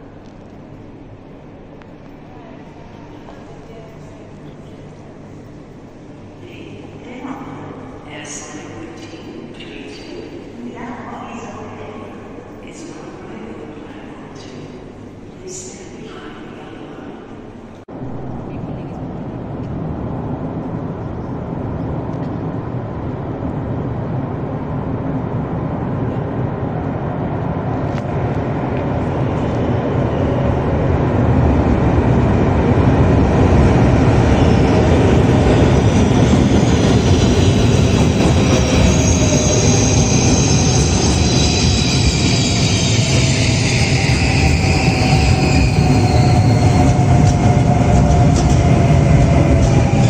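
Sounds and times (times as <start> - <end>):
train rumbling in tunnel: 0.0 - 50.0
high metallic squeal: 38.6 - 47.1.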